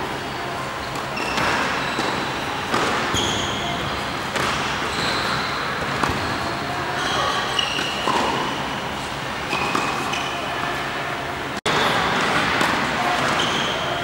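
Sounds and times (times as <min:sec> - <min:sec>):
shoes squeaking on court: 0:00.3 - 0:10.8, 0:11.7 - 0:14.0
tennis balls being hit: 0:00.9 - 0:03.2.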